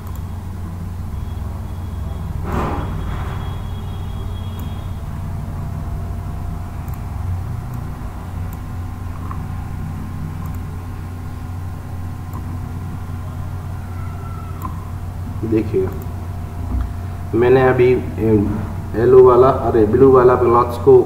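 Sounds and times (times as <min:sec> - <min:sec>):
faint clicks: 0:00.0 - 0:00.3, 0:10.4 - 0:10.7, 0:14.5 - 0:14.8
low background hum: 0:00.0 - 0:21.0.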